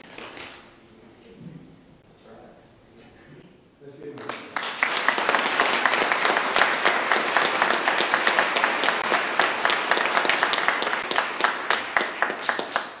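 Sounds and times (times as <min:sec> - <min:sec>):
crowd applauding: 0:04.0 - 0:13.0.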